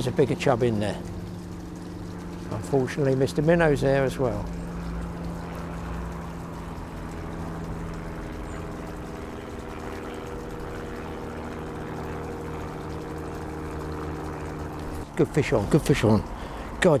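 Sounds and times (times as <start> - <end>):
road traffic drone: 0.0 - 17.0.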